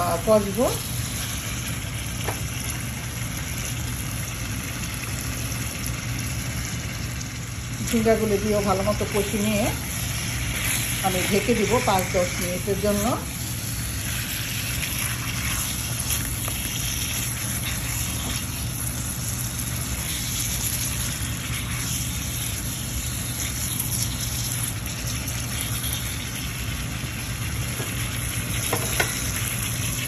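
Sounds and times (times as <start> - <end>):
steady low hum: 0.0 - 30.0
vegetables sizzling in oil: 0.0 - 30.0
spatula stirring in pan: 8.1 - 30.0.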